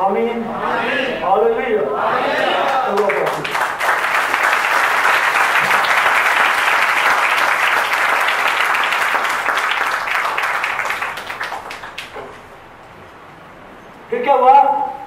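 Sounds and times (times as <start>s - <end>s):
congregation clapping: 2.4s - 12.5s.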